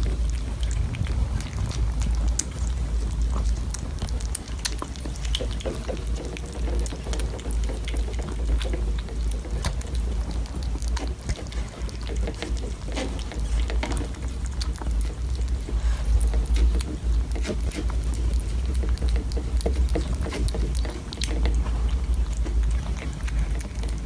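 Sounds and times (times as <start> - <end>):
cats chewing and lapping food: 0.0 - 24.0
steady low rumble: 0.0 - 24.0.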